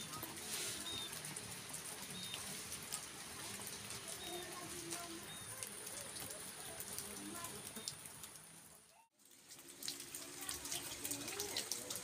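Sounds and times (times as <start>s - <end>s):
light rain pattering: 0.0s - 12.0s
ticks of single raindrops: 0.0s - 12.0s
bird chirping: 2.0s - 2.5s.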